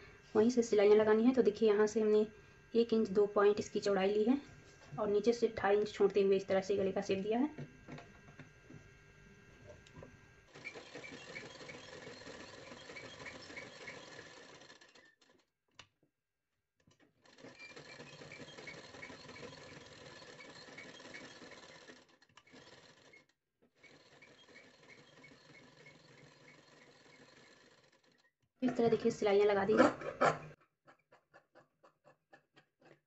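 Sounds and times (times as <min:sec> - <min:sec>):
sewing machine ticking: 0:10.5 - 0:15.4, 0:17.2 - 0:28.2.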